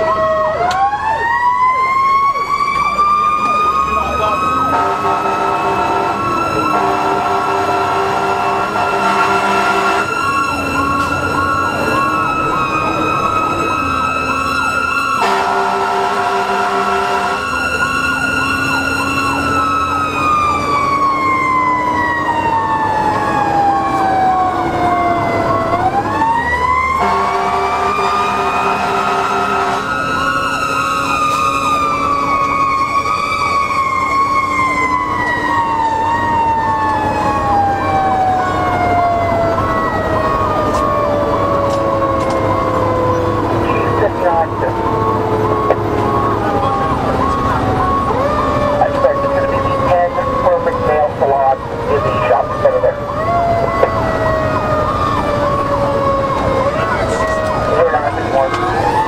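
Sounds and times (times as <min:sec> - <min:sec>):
electronic siren yelp: 0:00.0 - 0:59.0
wailing siren tone: 0:00.0 - 0:59.0
air horn blasts: 0:04.7 - 0:10.3, 0:15.2 - 0:17.6, 0:27.0 - 0:31.7.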